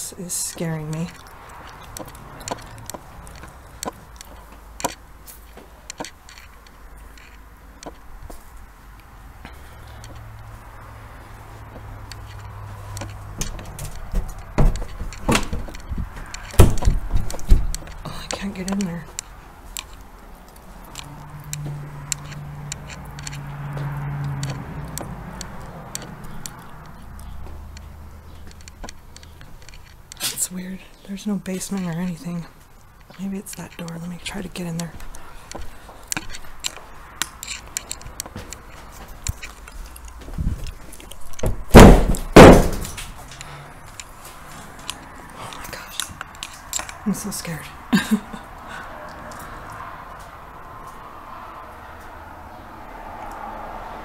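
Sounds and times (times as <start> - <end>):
footsteps: 0.3 - 30.5, 31.5 - 47.0
footsteps tapping and knocking: 11.6 - 20.0, 35.0 - 45.0.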